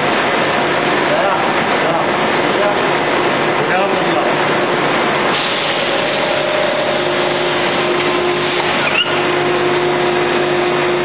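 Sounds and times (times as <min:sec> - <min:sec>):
machine humming tones: 0:04.7 - 0:11.0
rising squeak: 0:08.8 - 0:09.2.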